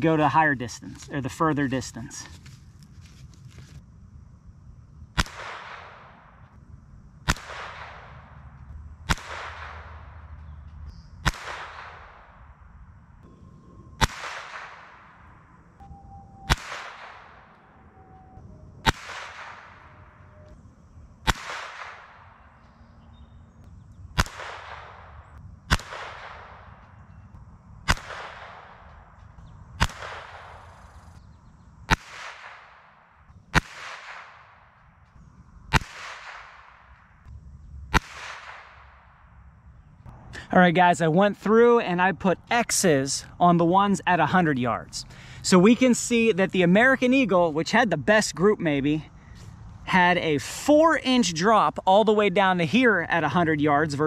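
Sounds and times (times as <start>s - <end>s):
rifle shots with echo: 5.2s - 6.4s, 7.2s - 10.6s, 11.2s - 12.5s, 14.0s - 15.5s, 16.5s - 17.8s, 18.8s - 20.2s, 21.2s - 22.7s, 24.1s - 27.1s, 27.8s - 30.8s, 31.9s - 34.8s, 35.7s - 37.0s, 37.9s - 39.3s.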